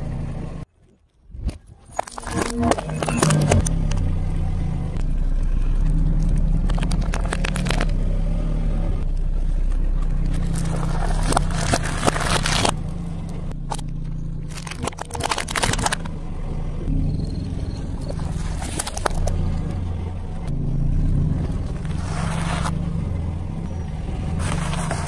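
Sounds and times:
car engine idling: 0.0s - 0.7s, 2.8s - 25.0s
tyre crushing objects: 10.2s - 12.8s.

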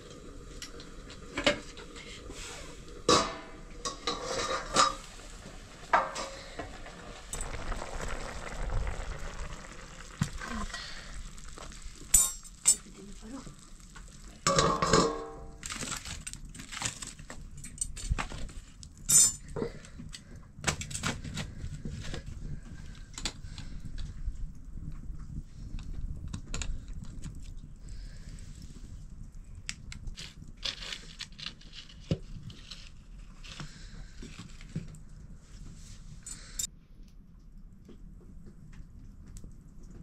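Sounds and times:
curry sizzling: 0.0s - 16.5s
metal utensils scraping a wok: 2.0s - 6.8s.

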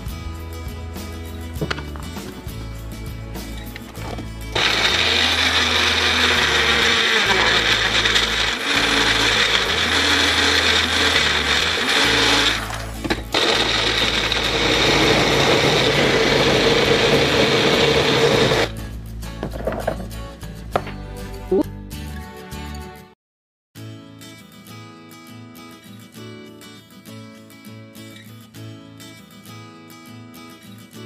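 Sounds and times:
blender running: 4.5s - 18.7s.

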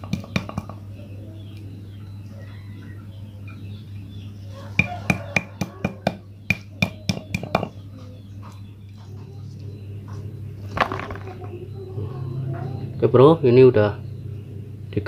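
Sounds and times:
stone pestle knocking on mortar: 0.0s - 0.7s, 4.8s - 7.8s.

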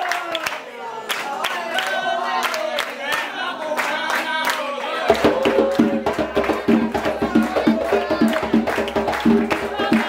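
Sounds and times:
group singing a chant: 0.0s - 10.0s
hand clapping: 0.0s - 10.0s
drum-led percussion music: 5.1s - 10.0s.

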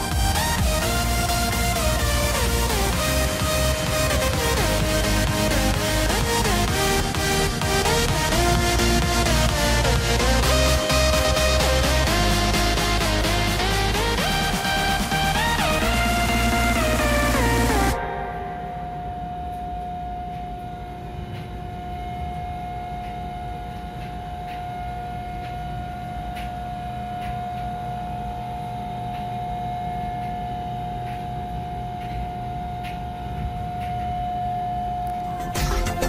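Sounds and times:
background music: 0.0s - 19.8s, 35.2s - 36.0s
machinery hum with high whine: 0.0s - 36.0s.

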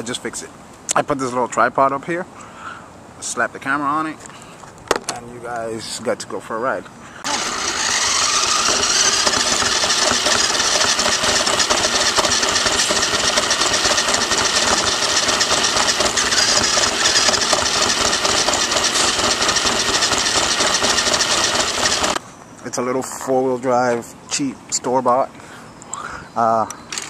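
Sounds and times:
electric motor whirring with rattle: 7.2s - 22.2s.

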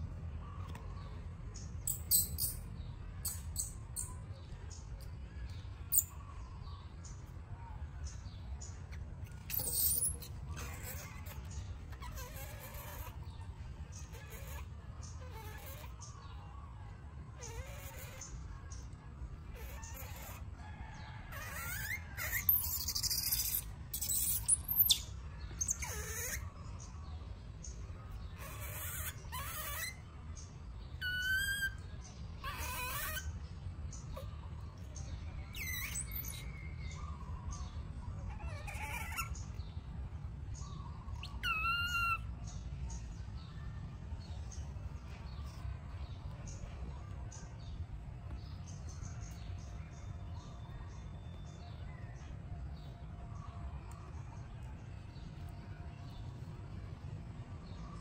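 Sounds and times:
baby monkey squealing and crying: 1.8s - 4.2s, 8.8s - 16.4s, 17.3s - 26.8s, 28.1s - 39.8s, 40.6s - 42.4s.

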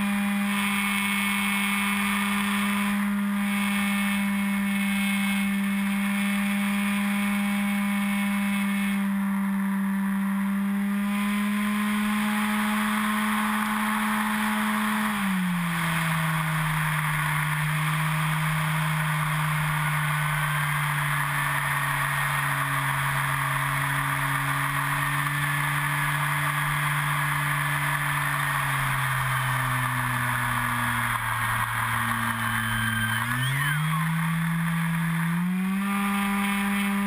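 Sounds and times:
electric motor and propeller hum: 0.0s - 37.0s.

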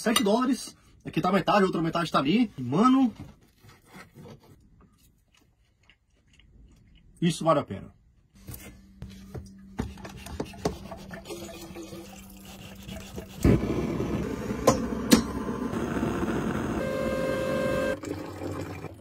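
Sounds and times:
water trickling into metal kettle: 10.9s - 13.4s, 17.9s - 19.0s
gas burner hissing: 13.4s - 18.0s
kettle whistle: 14.2s - 18.1s.

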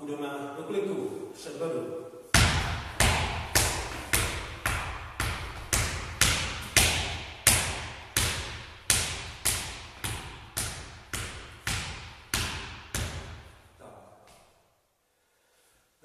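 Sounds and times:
ball bouncing on wooden floor: 2.3s - 13.6s.

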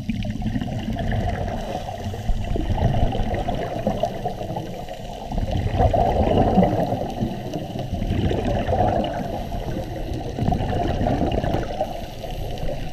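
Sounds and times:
bubbles gurgling underwater: 0.0s - 12.9s
diver breathing through regulator: 1.5s - 2.8s.

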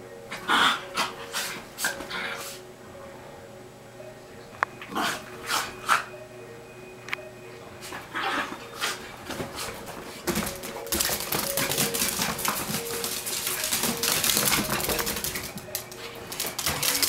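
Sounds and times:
dog claws clicking on hardwood floor: 10.3s - 17.0s.

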